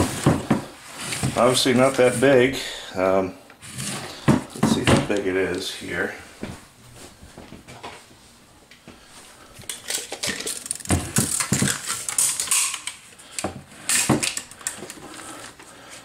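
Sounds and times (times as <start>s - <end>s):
tape measure blade clicking and rattling: 9.8s - 13.0s.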